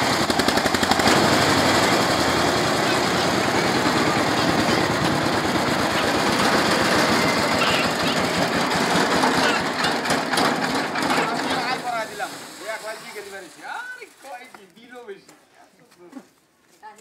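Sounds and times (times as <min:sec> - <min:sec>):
threshing machine clatter: 0:00.0 - 0:13.2.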